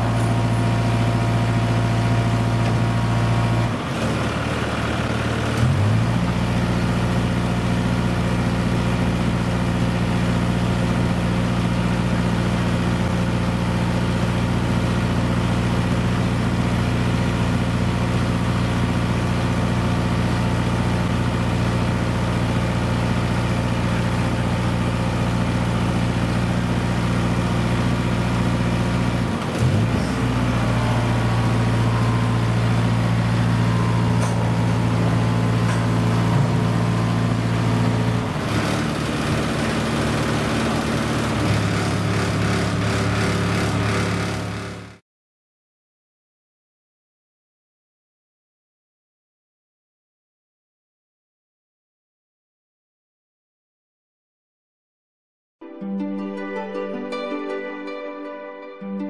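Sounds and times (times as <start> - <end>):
diesel truck engine running: 0.0 - 45.0.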